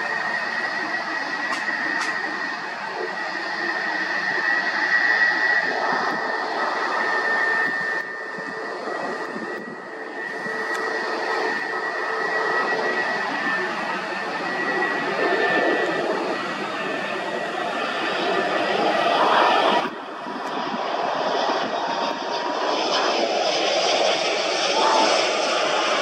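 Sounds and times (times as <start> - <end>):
high jet engine whine: 0.0 - 26.0
jet engines rushing: 0.0 - 26.0.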